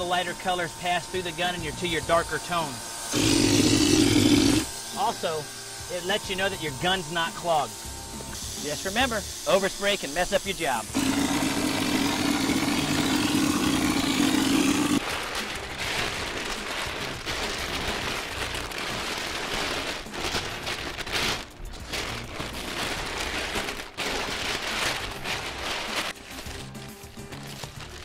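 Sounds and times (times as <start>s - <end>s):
spray gun hissing: 2.7s - 15.7s
masking paper crackling: 8.7s - 28.0s.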